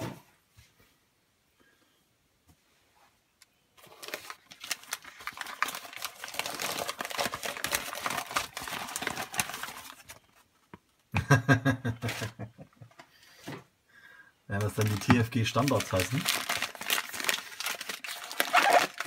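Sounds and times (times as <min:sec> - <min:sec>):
paper crinkling and rustling: 0:03.8 - 0:10.8, 0:14.5 - 0:19.0.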